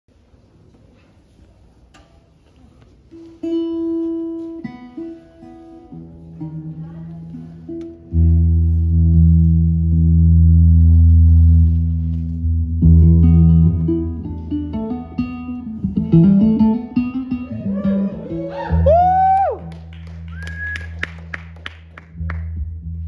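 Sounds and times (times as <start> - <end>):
guitar picked notes: 3.1 - 23.0
guitar chord ringing: 7.7 - 18.5.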